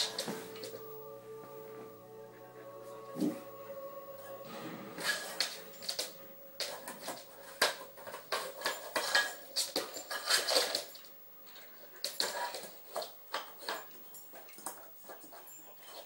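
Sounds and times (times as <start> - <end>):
dog claws skittering on floor: 5.0 - 16.0.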